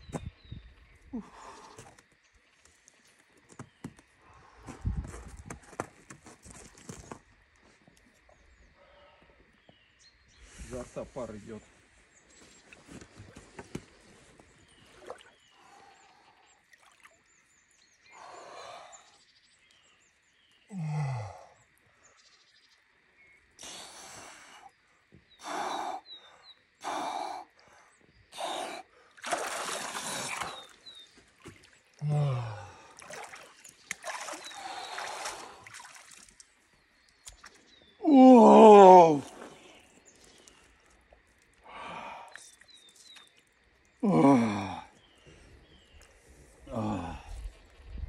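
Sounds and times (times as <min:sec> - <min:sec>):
water splashing and trickling: 0:12.4 - 0:19.0, 0:28.4 - 0:48.0
man breathing heavily and gasping: 0:25.4 - 0:29.2, 0:32.0 - 0:33.0, 0:41.6 - 0:42.4, 0:44.0 - 0:45.0, 0:46.6 - 0:47.6
man groaning: 0:32.0 - 0:32.8, 0:38.0 - 0:39.3, 0:44.0 - 0:44.9, 0:46.7 - 0:47.3.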